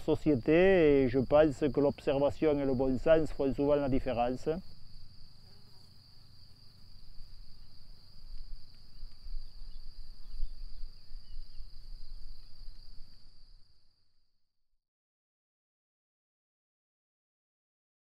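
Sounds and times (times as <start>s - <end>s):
crickets trilling: 0.0s - 14.3s.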